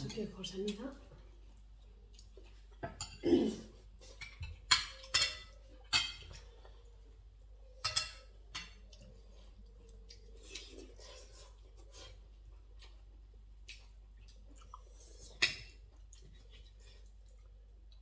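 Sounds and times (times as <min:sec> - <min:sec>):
cutlery clinking on plates: 0:02.8 - 0:06.5, 0:07.8 - 0:09.0.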